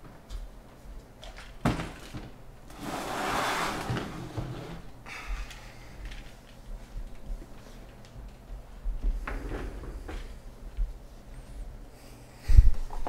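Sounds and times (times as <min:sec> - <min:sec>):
rustling sliding noise: 0:02.7 - 0:04.9.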